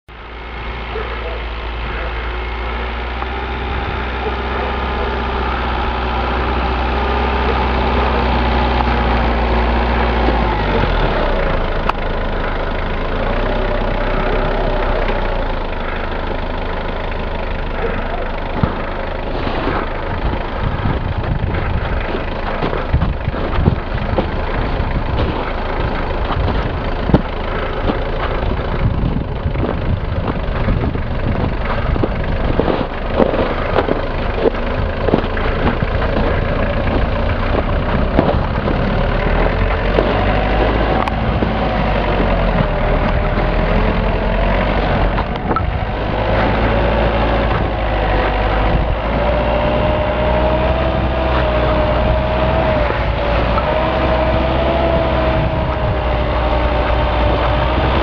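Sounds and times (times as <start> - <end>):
truck engine running: 0.1 - 58.0
irregular short knocks: 19.8 - 58.0.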